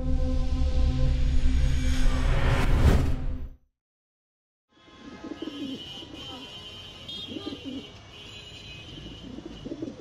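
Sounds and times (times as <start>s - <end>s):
pigeons cooing: 7.3s - 7.9s, 9.1s - 10.0s.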